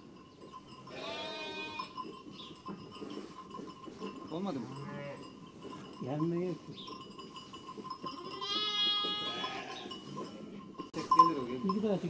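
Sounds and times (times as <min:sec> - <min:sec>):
lamb bleating high-pitched: 0:00.9 - 0:01.9, 0:08.3 - 0:09.9
sheep bleating: 0:00.9 - 0:01.9, 0:08.3 - 0:10.5.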